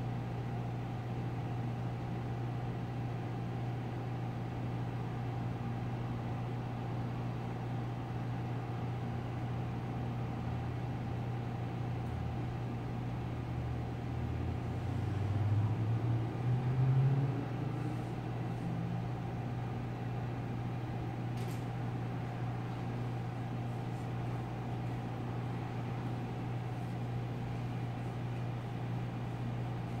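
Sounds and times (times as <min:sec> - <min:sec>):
low machine hum: 0:00.0 - 0:30.0
low drone rising in pitch: 0:15.1 - 0:18.0.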